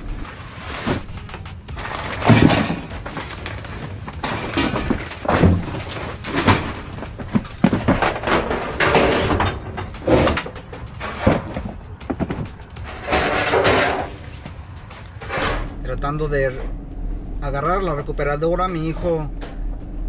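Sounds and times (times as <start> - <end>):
tools knocking and clattering: 1.8 - 14.6.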